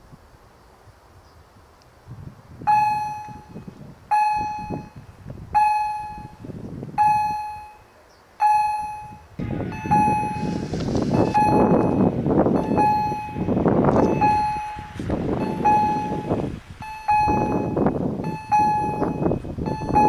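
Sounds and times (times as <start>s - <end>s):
electric train rumble: 0.0s - 20.0s
level crossing electronic bell: 8.4s - 10.4s, 12.6s - 13.4s, 14.1s - 20.0s.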